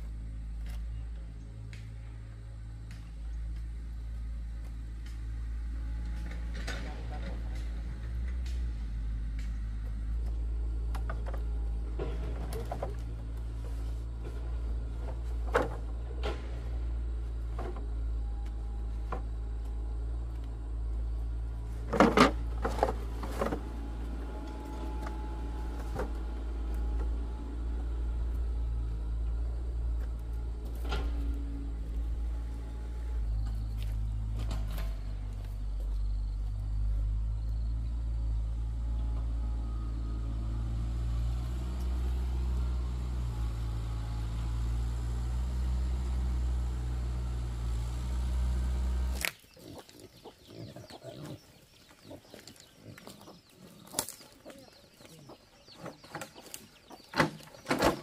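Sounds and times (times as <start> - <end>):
low hum: 0.0 - 49.4.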